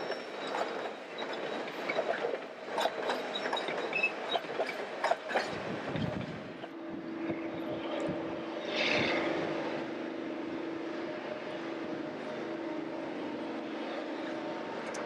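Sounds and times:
train wheels clicking over track: 0:00.0 - 0:06.8
diesel locomotive engine drone: 0:00.0 - 0:15.0.

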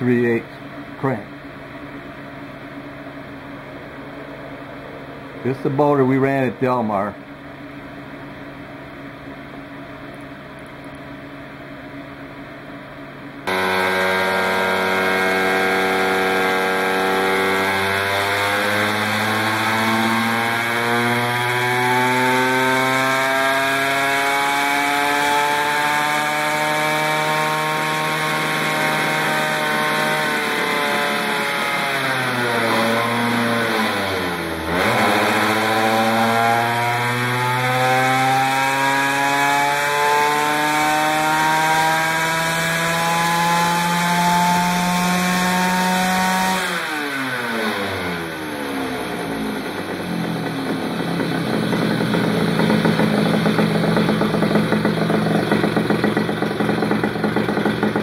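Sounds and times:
kart engine running flat out: 0:13.4 - 0:58.0.

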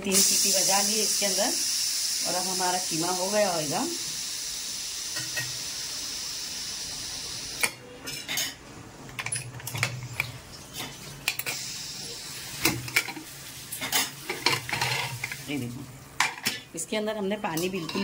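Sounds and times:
steam hissing from pressure cooker: 0:00.0 - 0:07.7, 0:11.4 - 0:12.8.

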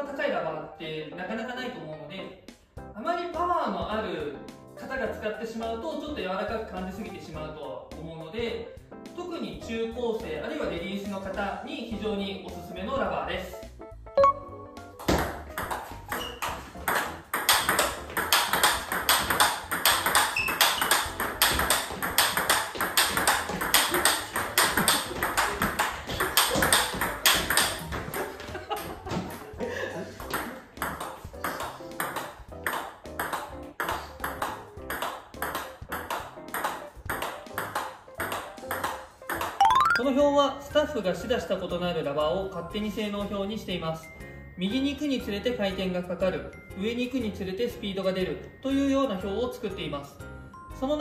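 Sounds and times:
background music: 0:00.0 - 0:51.0
ball bouncing on table: 0:15.0 - 0:28.4, 0:30.3 - 0:40.1
ball clicking off bats: 0:15.0 - 0:28.4.

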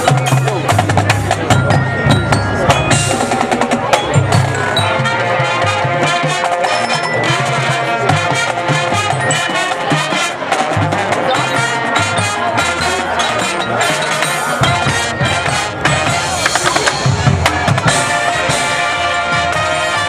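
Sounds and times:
mallet strikes on keyboard percussion: 0:00.0 - 0:05.3
marching band playing: 0:00.0 - 0:20.0
low brass notes: 0:02.6 - 0:20.0.

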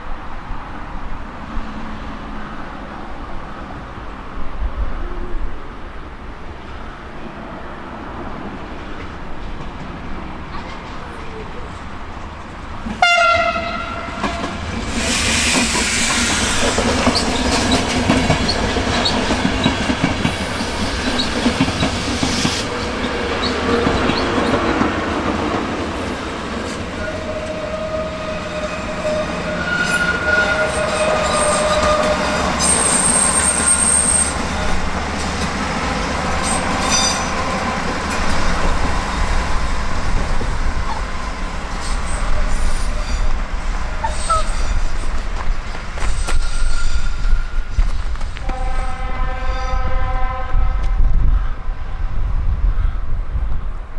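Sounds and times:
wheels squealing on rails: 0:13.2 - 0:25.0, 0:26.6 - 0:50.8.

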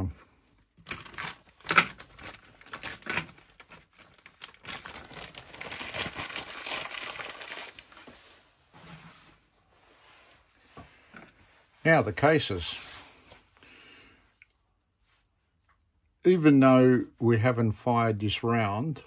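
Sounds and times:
plastic bag crinkling: 0:00.8 - 0:08.3.

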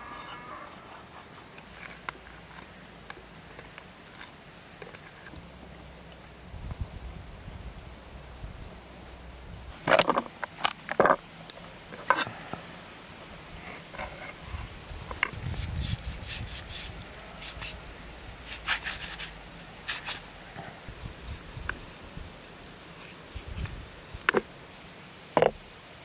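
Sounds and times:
scraping and rubbing: 0:18.4 - 0:20.8.

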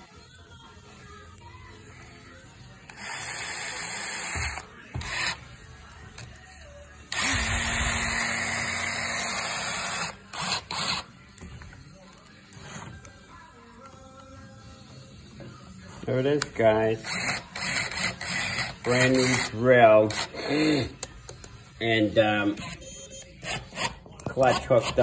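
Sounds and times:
cordless drill motor running: 0:07.1 - 0:11.0.

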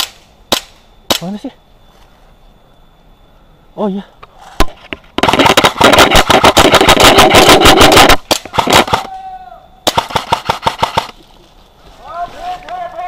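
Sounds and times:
airsoft rifle firing: 0:05.2 - 0:09.2, 0:09.9 - 0:11.2.

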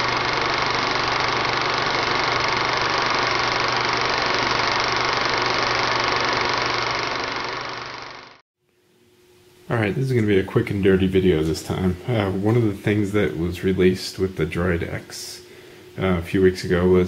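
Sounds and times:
mechanical whirring: 0:00.0 - 0:08.4.

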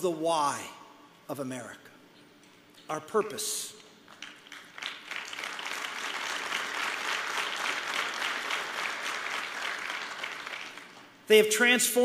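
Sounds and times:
audience applauding: 0:04.1 - 0:11.1.

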